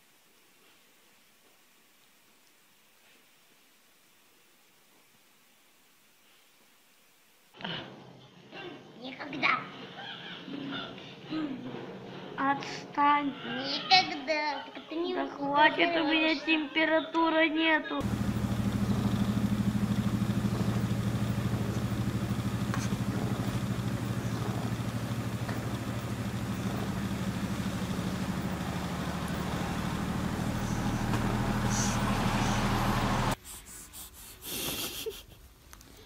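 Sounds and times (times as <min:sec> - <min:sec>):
cat purring: 0:18.0 - 0:33.4.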